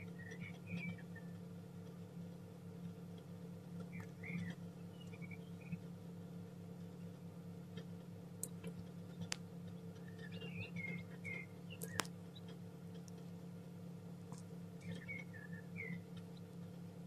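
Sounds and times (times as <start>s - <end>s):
chicks peeping: 0.0s - 1.4s, 3.8s - 5.9s, 8.8s - 13.3s, 14.3s - 16.8s
steady low hum: 0.0s - 17.0s
sharp clicks: 11.2s - 13.2s.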